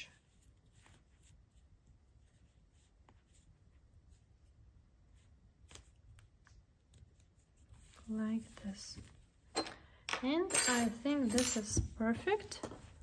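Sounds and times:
faint rustling of cord: 0:00.0 - 0:09.9.

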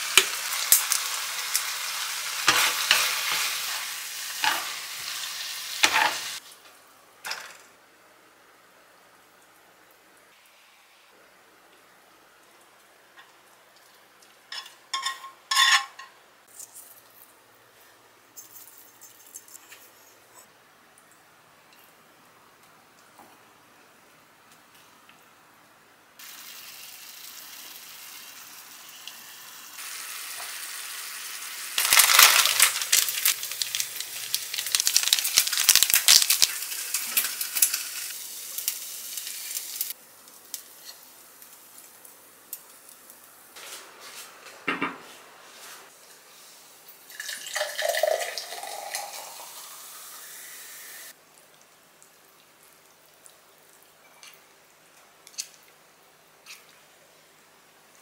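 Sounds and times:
sauce sizzling in a frying pan: 0:00.0 - 0:06.5, 0:26.2 - 0:43.4, 0:47.8 - 0:51.2.

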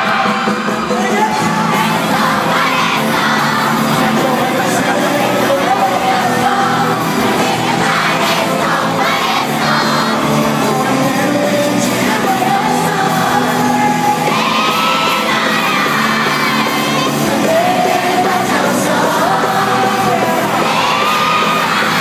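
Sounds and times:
audience yelling and whooping: 0:00.0 - 0:11.0, 0:11.7 - 0:22.0
pop-rock band playing: 0:00.0 - 0:22.0
man singing long notes: 0:03.8 - 0:07.0.

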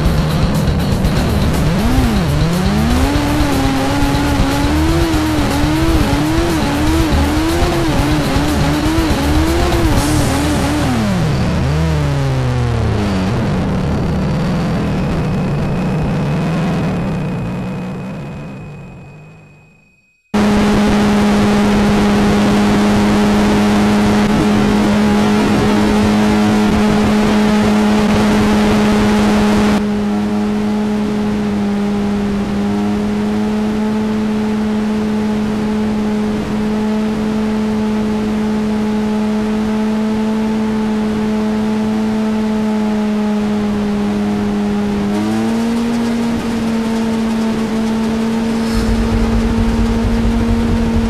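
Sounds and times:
motorcycle engine at high revs: 0:00.0 - 0:18.8, 0:20.4 - 0:51.0
heavy wind rush: 0:48.4 - 0:51.0.

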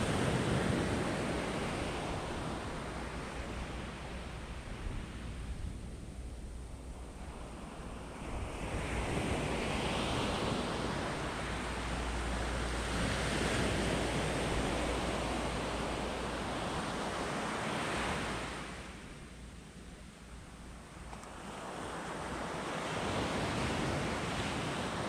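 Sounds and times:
small waves breaking on beach: 0:07.2 - 0:19.2, 0:21.3 - 0:25.0.

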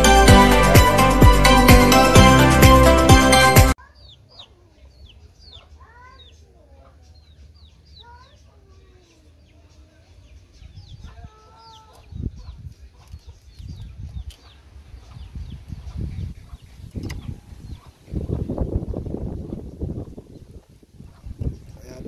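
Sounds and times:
small birds chirping: 0:03.8 - 0:22.0
chickens clucking: 0:10.8 - 0:18.0.

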